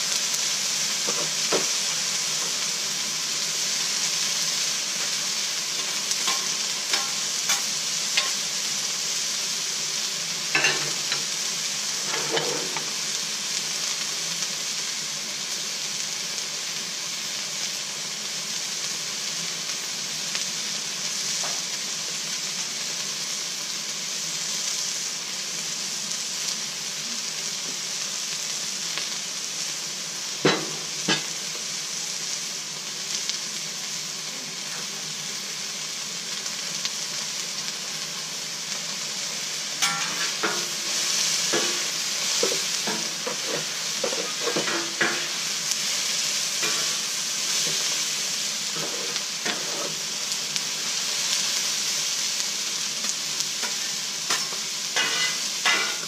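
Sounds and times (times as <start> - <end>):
vegetables sizzling on griddle: 0.0 - 56.0
metal spatulas scraping and tapping: 5.8 - 8.4, 12.0 - 12.9, 39.8 - 40.7, 42.4 - 45.3, 53.6 - 56.0.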